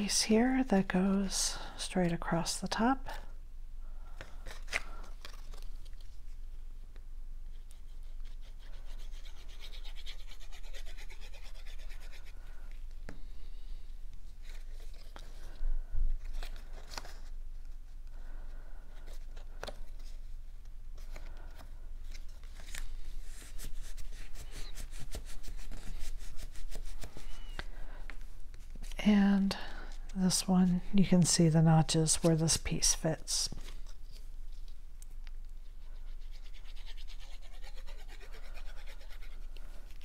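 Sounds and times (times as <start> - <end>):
paper scratching and rustling: 21.1 - 27.7.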